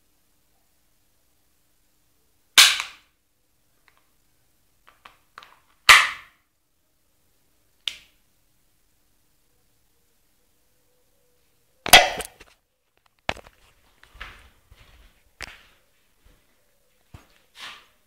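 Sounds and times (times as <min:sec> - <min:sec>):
airsoft pistol shots: 0:02.6 - 0:03.0, 0:05.9 - 0:06.3, 0:11.9 - 0:12.4.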